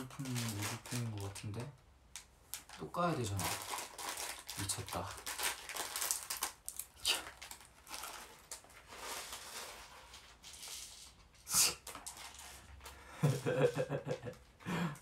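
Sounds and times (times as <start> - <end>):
plastic pieces rustling and clicking: 0.0 - 2.8, 3.4 - 14.5
plastic wrapping crinkling and tearing: 0.0 - 11.2, 11.8 - 14.0.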